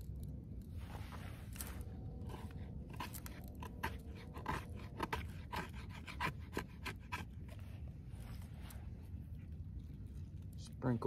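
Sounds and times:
hatchet blade scraping wood: 0:01.5 - 0:07.6.

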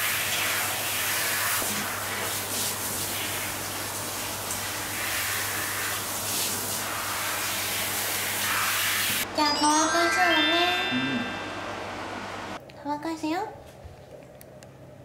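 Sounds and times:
shower head spraying water: 0:00.0 - 0:09.2.

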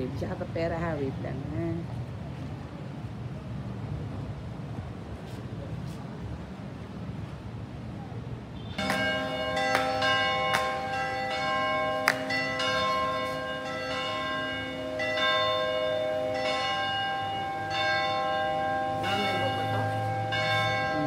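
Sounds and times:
church bells ringing: 0:08.8 - 0:21.0.

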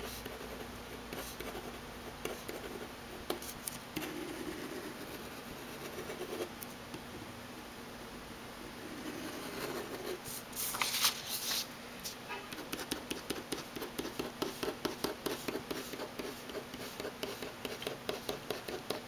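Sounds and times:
pen scratching on paper: 0:00.0 - 0:06.5, 0:08.8 - 0:10.2, 0:12.5 - 0:19.0
hand sliding across paper: 0:10.2 - 0:11.7.

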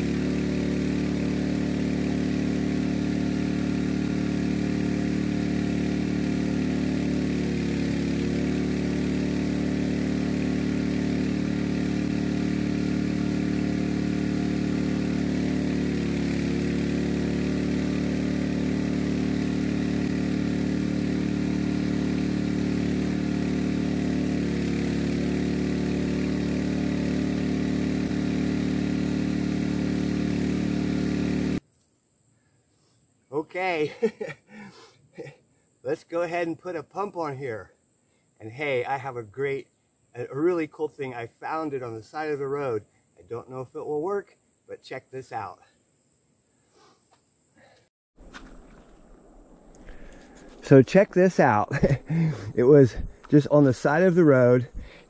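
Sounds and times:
engine-driven pump running: 0:00.0 - 0:31.6, 0:48.2 - 0:55.0.

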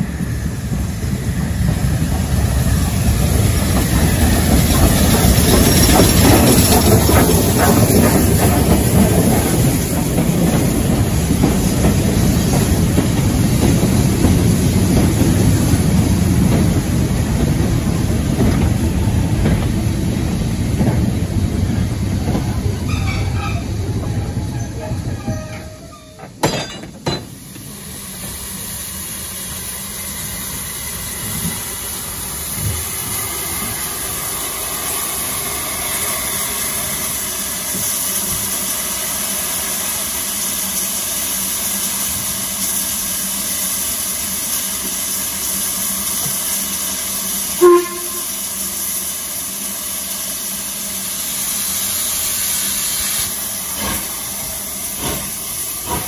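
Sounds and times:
steam locomotive hissing: 0:00.0 - 0:56.0
short loud whistle toot: 0:47.6 - 0:48.4.

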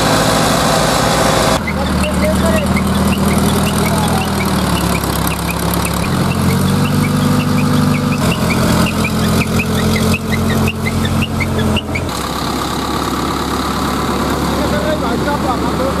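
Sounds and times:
heavy diesel engine running: 0:00.0 - 0:16.0
short high chirps: 0:01.6 - 0:12.1.

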